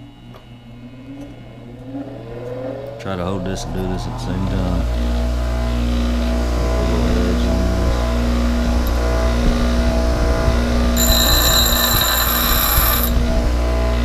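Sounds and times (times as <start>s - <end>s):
high-pitched grinding ring: 4.9s - 14.0s
bench grinder humming: 5.0s - 14.0s.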